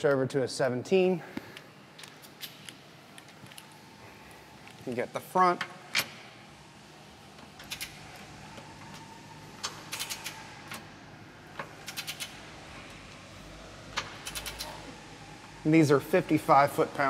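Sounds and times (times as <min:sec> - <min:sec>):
socket wrench ratchet clicking: 0:09.9 - 0:10.4, 0:11.8 - 0:12.3, 0:14.2 - 0:14.6.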